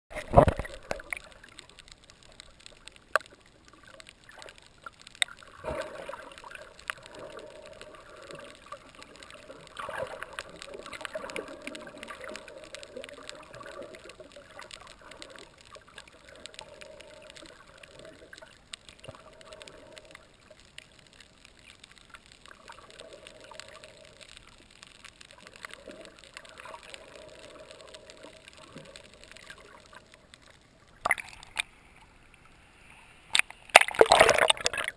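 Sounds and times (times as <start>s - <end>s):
sharp underwater clicks: 0.1s - 32.4s, 33.2s - 34.9s
splash into water: 33.7s - 34.9s.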